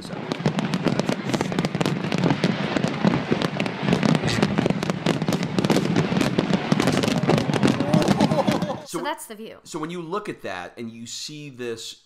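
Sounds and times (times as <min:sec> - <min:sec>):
fireworks bangs and crackling: 0:00.0 - 0:09.0.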